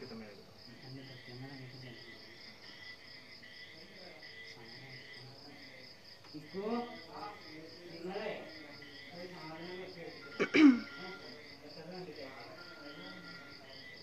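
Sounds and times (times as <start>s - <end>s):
insect low chirping: 0.0s - 14.0s
insect high trill: 6.5s - 14.0s.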